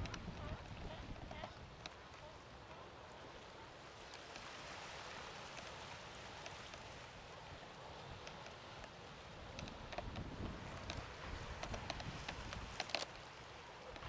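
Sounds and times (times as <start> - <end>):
faint clicks: 0.0 - 2.9, 5.4 - 7.0, 8.1 - 14.0
sea surf: 0.0 - 14.0.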